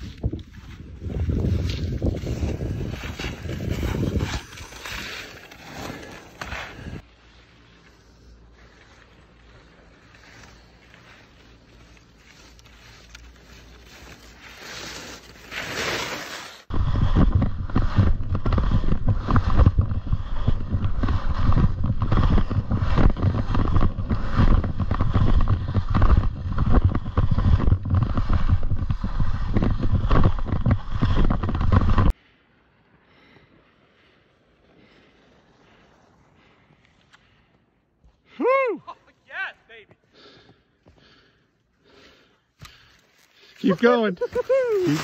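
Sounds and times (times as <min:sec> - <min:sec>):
wind rumble on microphone: 0:00.0 - 0:04.6, 0:16.7 - 0:32.1
skis scraping over snow: 0:00.0 - 0:38.3, 0:41.9 - 0:45.0.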